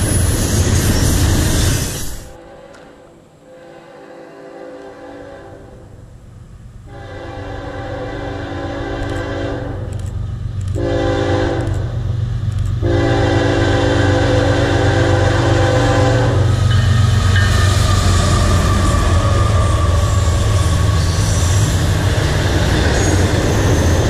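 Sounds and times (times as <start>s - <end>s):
low rumble of locomotives: 0.0s - 24.0s
train wheel noise: 0.0s - 24.0s
locomotive air horn blasts: 2.3s - 6.0s, 6.9s - 9.9s, 10.8s - 12.0s, 12.8s - 16.6s.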